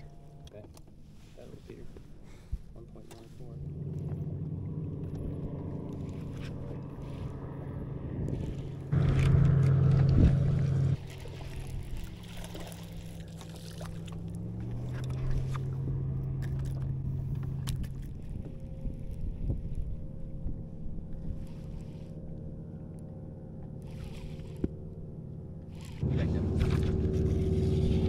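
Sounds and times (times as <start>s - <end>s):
electric trolling motor humming: 3.1s - 28.0s.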